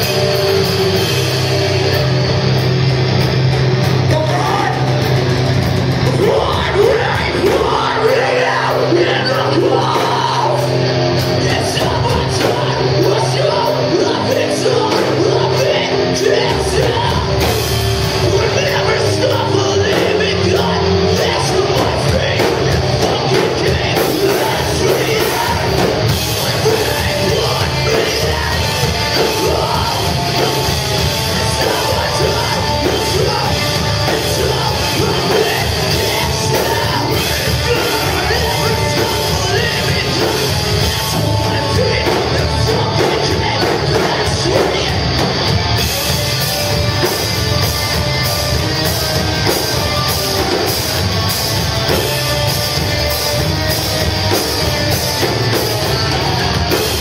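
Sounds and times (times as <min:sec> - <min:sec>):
live rock band playing: 0:00.0 - 0:57.0
person singing and yelling: 0:04.0 - 0:05.3, 0:06.0 - 0:47.2.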